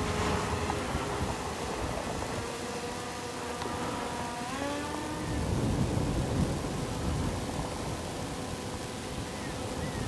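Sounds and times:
drone propellers whining: 0.0 - 10.0
wind rumble on microphone: 0.0 - 10.0.

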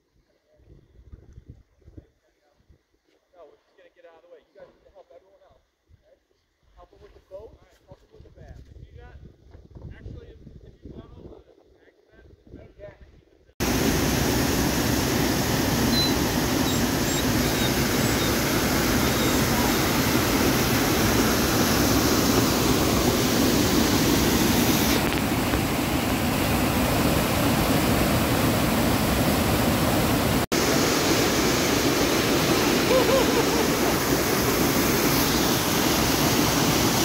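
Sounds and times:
waterfall rushing over rocks: 13.6 - 37.0.

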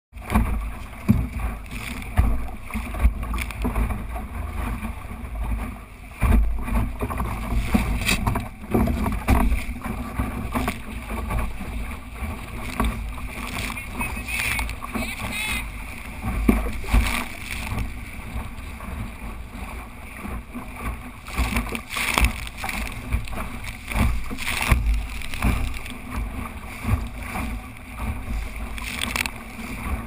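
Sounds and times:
water slapping against boat hull: 0.1 - 30.0
boat knocks: 0.2 - 30.0.

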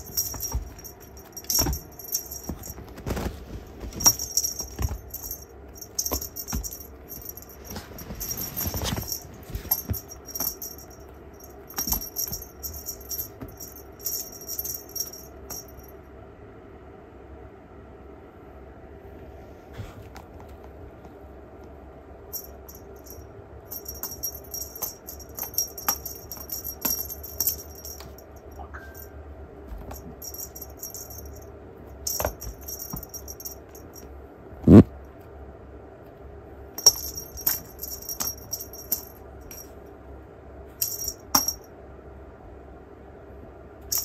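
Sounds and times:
small bell jingling: 0.0 - 16.0, 22.3 - 29.1, 29.8 - 34.1, 36.8 - 39.8, 40.8 - 41.7.

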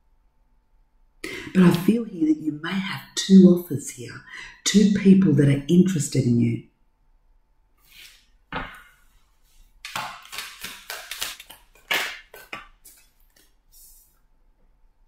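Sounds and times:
cards being shuffled: 9.8 - 14.1.

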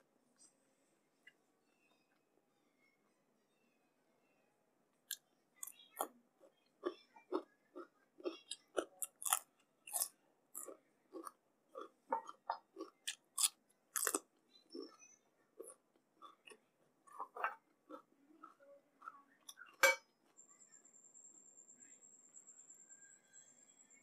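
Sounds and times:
chewing food: 5.1 - 19.8.

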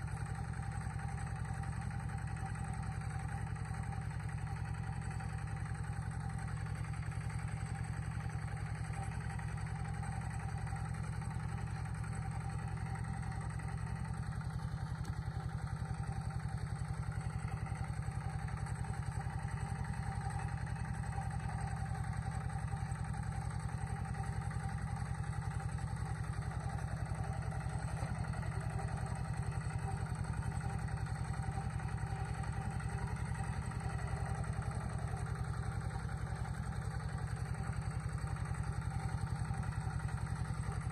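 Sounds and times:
vehicle engine running steadily: 0.0 - 40.9.

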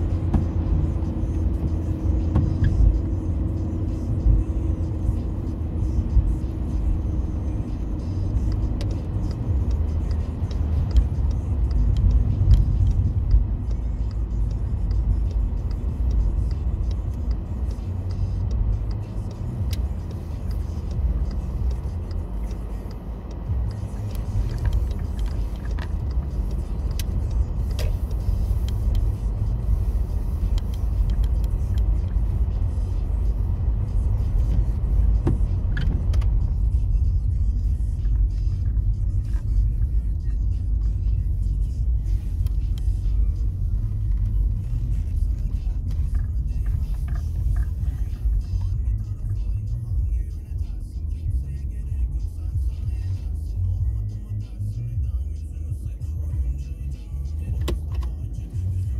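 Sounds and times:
car road and engine rumble: 0.0 - 58.9.

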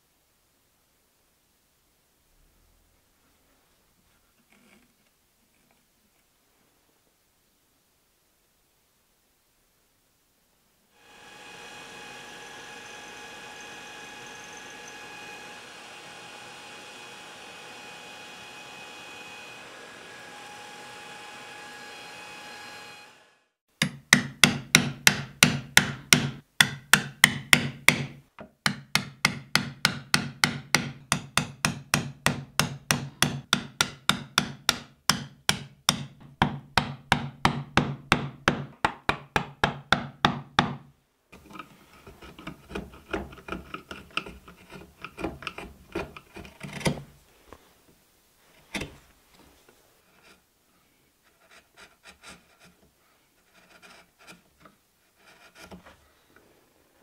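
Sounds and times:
chisel paring and scraping wood: 23.8 - 40.8, 41.4 - 47.2, 50.1 - 50.4, 51.2 - 56.1
mallet knocking chisel into wood: 23.8 - 40.9.

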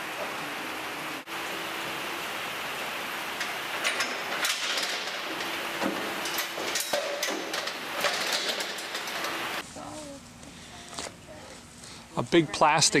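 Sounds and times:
steady hiss: 0.0 - 13.0
metal frame rattling: 3.3 - 9.6.

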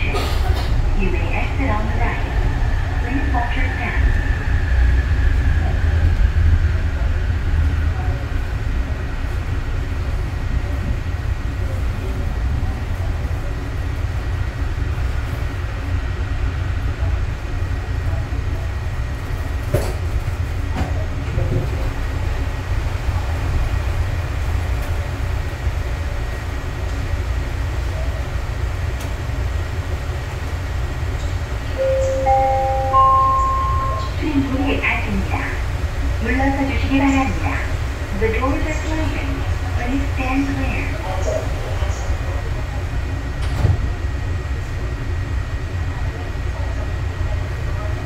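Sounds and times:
train cabin low rumble: 0.0 - 48.0
three-tone rising chime: 31.8 - 34.1.

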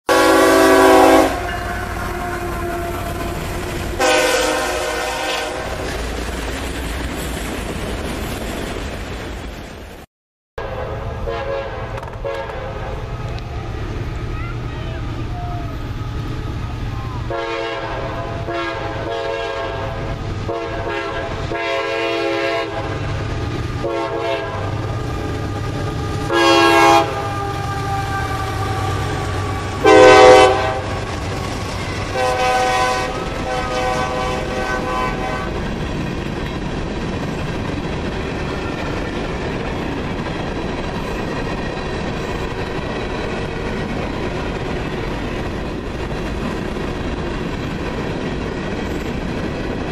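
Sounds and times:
locomotive air horn blasts: 0.1 - 3.4, 4.0 - 5.8, 10.6 - 13.2, 17.3 - 23.0, 23.8 - 24.9, 25.5 - 31.1, 32.1 - 35.6
train wheels rumbling on rails: 0.1 - 10.1, 11.1 - 49.9.

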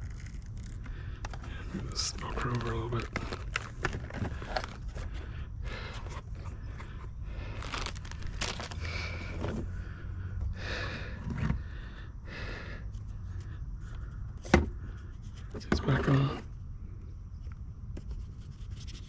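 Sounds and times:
rustling and scraping in case: 0.0 - 9.8, 10.9 - 11.7, 12.9 - 16.5.

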